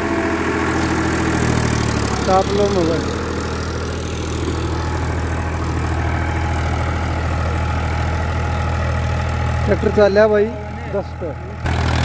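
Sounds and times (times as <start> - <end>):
tractor diesel engine under load: 0.0 - 12.0.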